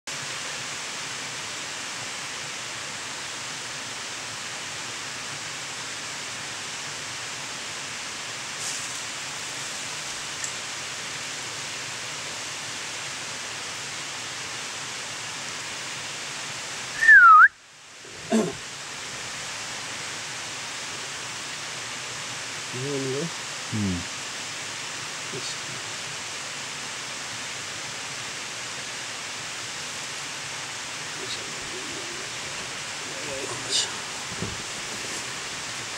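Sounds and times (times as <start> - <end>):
outdoor background hiss: 0.1 - 35.9
loud whistled call: 16.9 - 17.6.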